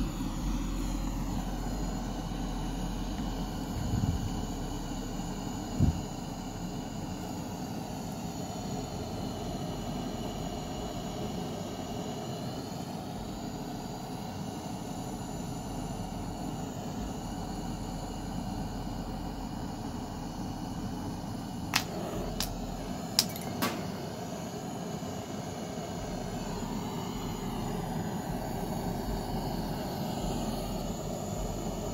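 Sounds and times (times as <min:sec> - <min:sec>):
gas torch flame hissing: 0:00.0 - 0:31.9
popcorn kernels popping: 0:21.7 - 0:23.8.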